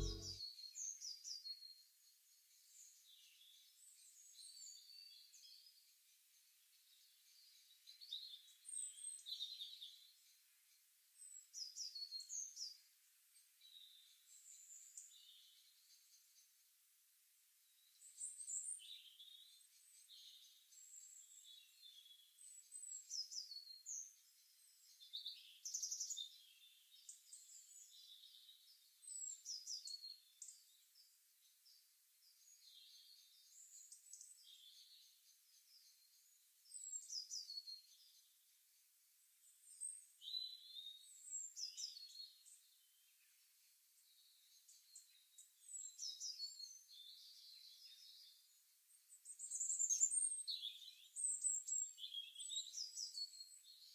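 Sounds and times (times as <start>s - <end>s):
faint birdsong: 0.0s - 17.0s, 17.6s - 53.9s.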